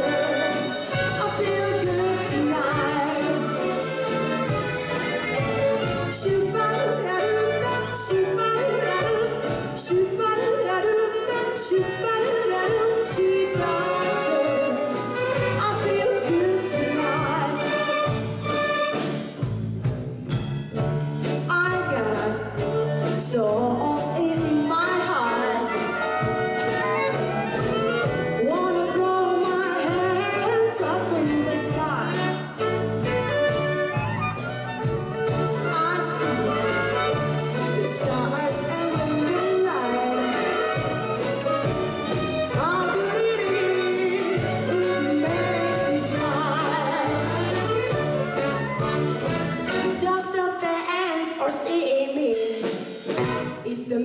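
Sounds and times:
mandolins and violins playing: 0.0 - 10.6, 13.3 - 19.2, 25.2 - 50.1
woman singing swing song: 0.0 - 19.2, 21.2 - 54.0.

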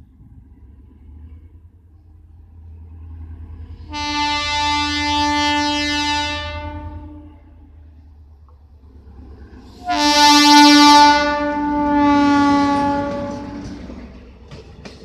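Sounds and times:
train rumble: 0.0 - 15.0
train horn blast: 3.8 - 7.7, 9.7 - 14.1.

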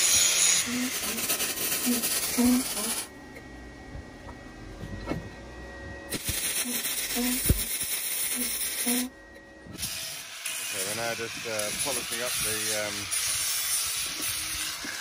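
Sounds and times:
welding arc crackling and sizzling: 0.0 - 3.1, 6.1 - 9.1, 9.8 - 15.0.

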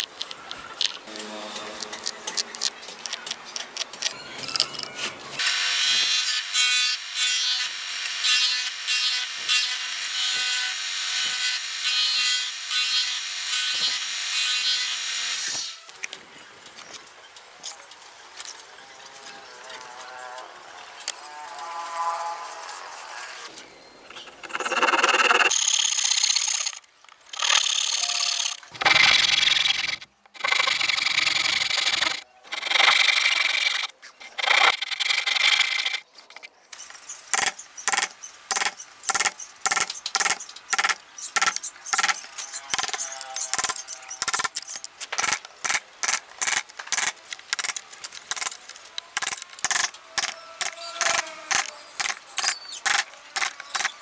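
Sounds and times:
hand saw cutting wood: 27.4 - 36.0.

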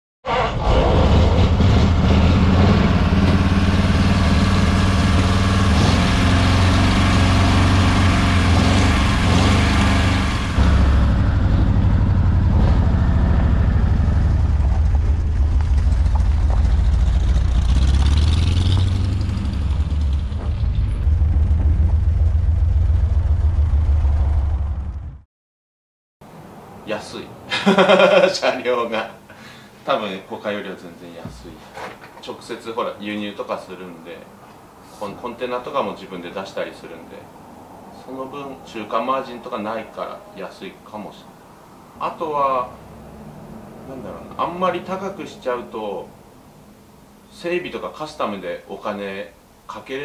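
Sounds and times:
car engine running: 1.4 - 25.2.

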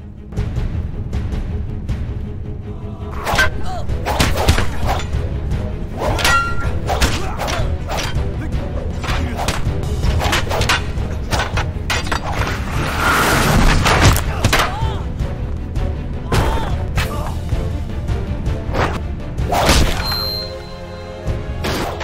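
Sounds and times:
film soundtrack music: 0.0 - 22.0
bamboo staffs striking: 3.2 - 5.2, 6.0 - 8.3, 9.0 - 12.5.

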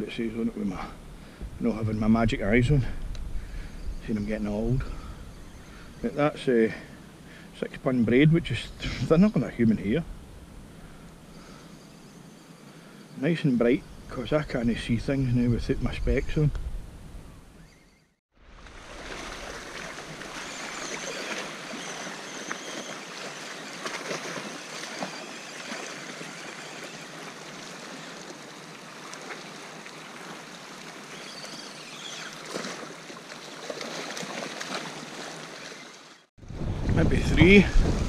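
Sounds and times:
water washing against shore: 18.4 - 38.0.

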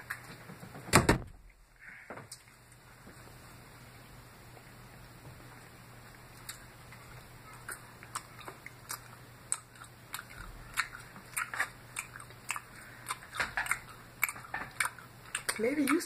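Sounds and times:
chewing crunchy salad: 5.5 - 16.0.

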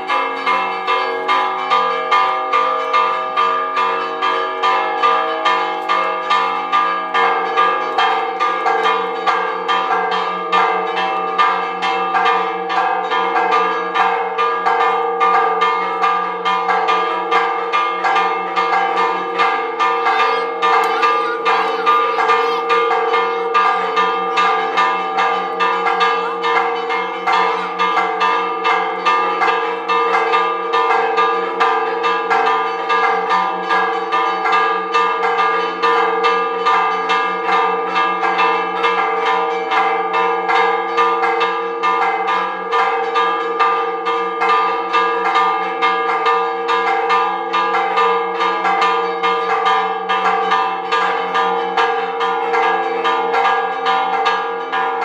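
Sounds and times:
church bells ringing: 0.0 - 55.0.

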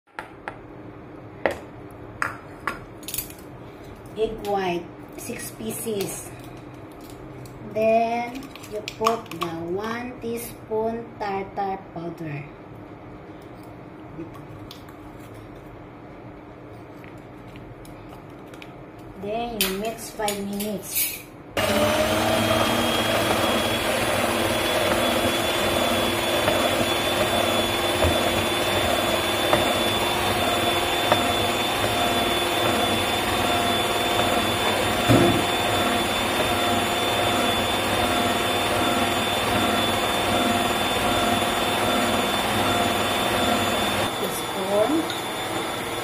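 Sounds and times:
stand mixer motor whine: 21.6 - 46.0.

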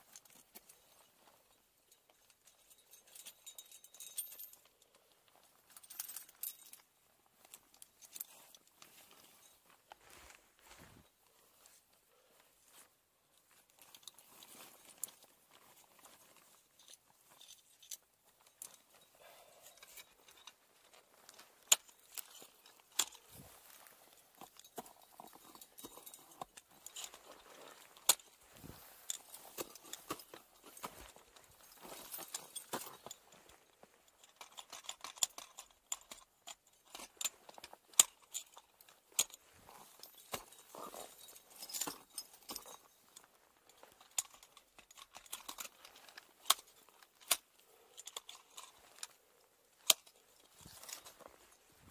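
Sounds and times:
climbing gear clinking: 0.0 - 51.9
clothing rustling: 0.1 - 34.3, 36.9 - 51.9.

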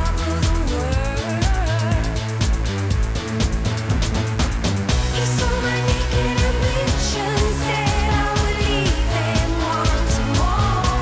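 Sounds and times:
pop music with steady beat: 0.0 - 11.0.

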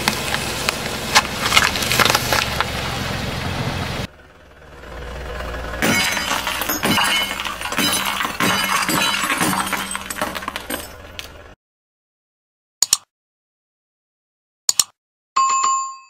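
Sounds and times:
plates cracking under tyre: 0.0 - 2.8
shards clinking: 5.8 - 11.3
double click: 12.8 - 13.1, 14.7 - 15.0.

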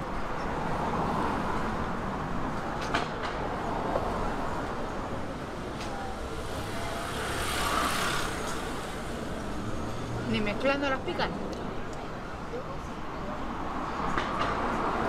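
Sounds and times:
vehicle passing hiss: 5.9 - 9.9.

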